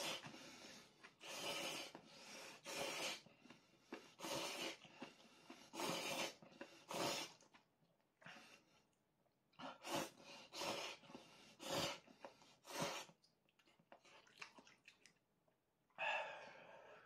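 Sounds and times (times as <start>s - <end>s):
noodles slurped: 1.0s - 7.7s, 9.6s - 15.2s.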